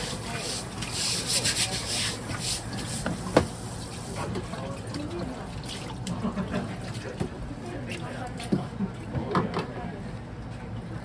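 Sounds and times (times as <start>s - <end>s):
water running: 0.0s - 8.4s.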